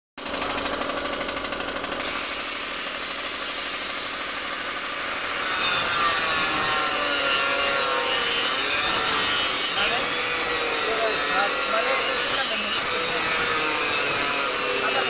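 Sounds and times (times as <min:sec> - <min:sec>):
paint spray gun hissing: 0:00.2 - 0:05.4
air compressor humming: 0:00.2 - 0:15.0.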